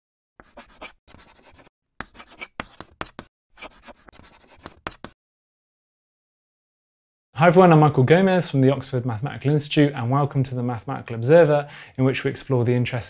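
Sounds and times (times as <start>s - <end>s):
chalk scratching on blackboard: 0.4s - 5.2s.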